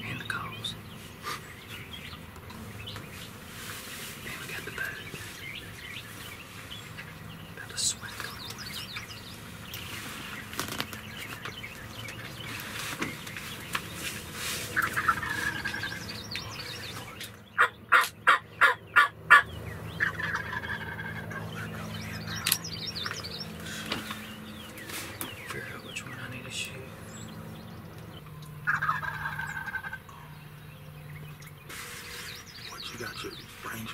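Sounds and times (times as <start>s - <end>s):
turkeys gobbling: 14.6s - 16.2s, 17.6s - 21.6s, 28.6s - 30.1s
raspy yelping calls: 14.7s - 16.9s, 17.6s - 21.6s, 28.6s - 30.0s.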